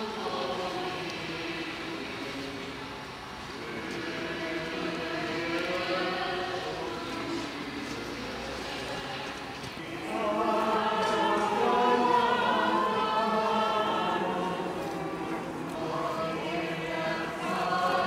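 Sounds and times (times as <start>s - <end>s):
group singing in unison: 0.0s - 18.0s.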